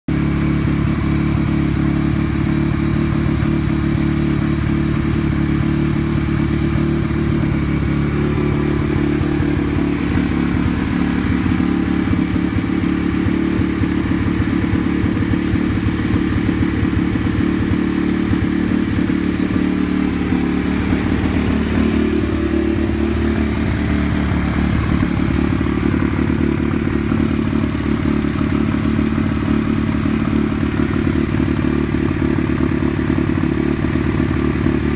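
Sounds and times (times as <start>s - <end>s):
motorcycle engine idling: 0.1s - 34.9s.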